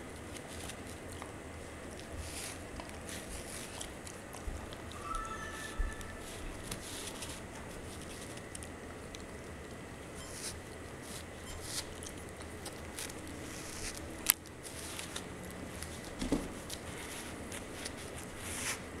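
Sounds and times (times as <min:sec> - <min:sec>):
dog chewing a plush toy: 0:00.0 - 0:05.1, 0:05.9 - 0:19.0.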